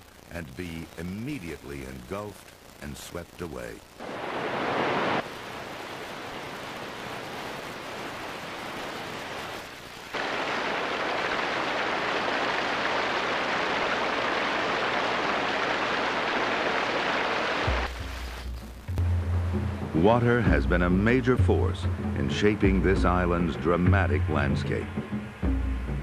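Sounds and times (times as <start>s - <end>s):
river whitewater churning: 4.0s - 17.9s
waterfall rushing: 4.0s - 18.4s.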